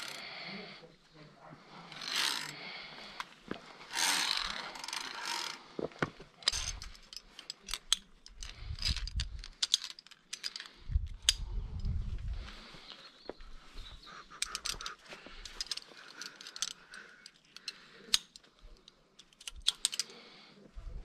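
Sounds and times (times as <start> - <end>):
carabiners clinking on steel cable: 0.0 - 0.3, 1.9 - 3.2, 3.9 - 11.9, 14.3 - 20.3.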